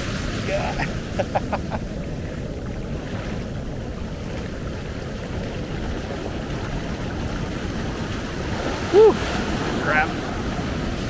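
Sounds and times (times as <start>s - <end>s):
surf swash rushing up sand: 0.0s - 11.0s.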